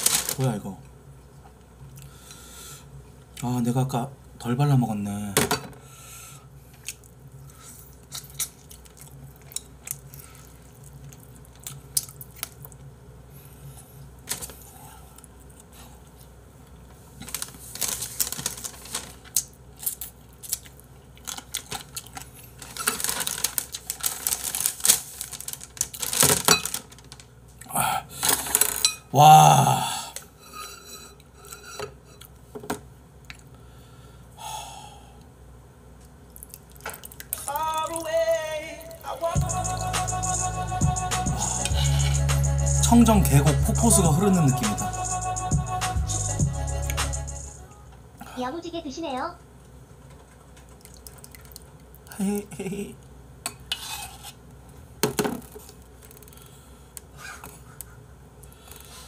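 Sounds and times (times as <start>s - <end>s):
person gnawing meat off bones: 7.8s - 12.9s
loud mouth sounds: 39.4s - 47.6s.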